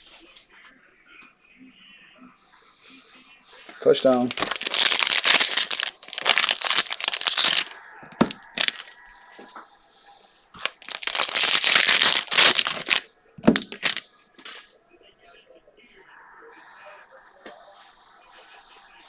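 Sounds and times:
foil wrapper crinkling: 3.8s - 9.0s, 10.6s - 14.6s.

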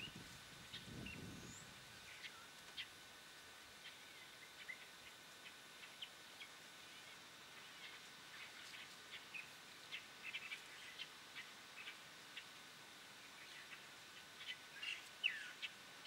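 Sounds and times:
birds chirping: 0.0s - 16.0s
low steady hiss: 0.0s - 16.0s.

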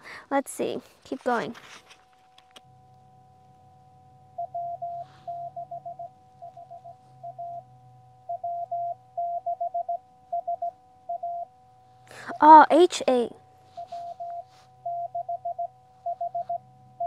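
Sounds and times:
morse code beeps: 4.4s - 11.5s, 12.2s - 12.8s, 13.7s - 17.0s.

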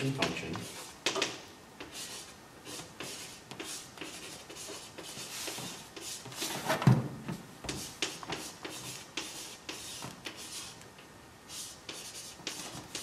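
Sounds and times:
light taps and scratching at desk: 0.0s - 6.4s.

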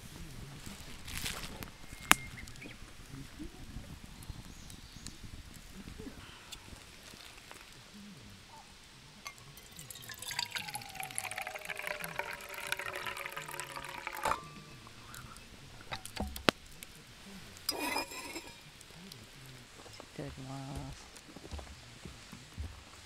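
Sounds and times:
liquid pouring into metal mug: 9.2s - 16.5s, 17.6s - 18.6s.

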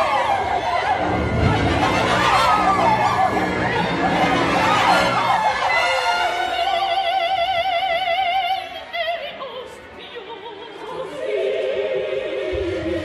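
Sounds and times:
operatic soprano singing with vibrato: 0.0s - 13.0s
orchestra: 0.0s - 13.0s.

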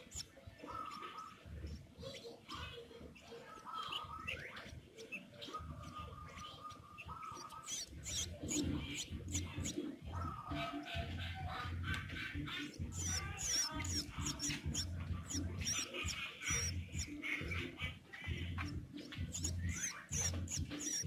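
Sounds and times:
bird nestling begging chirps: 0.0s - 2.6s, 3.2s - 21.0s.

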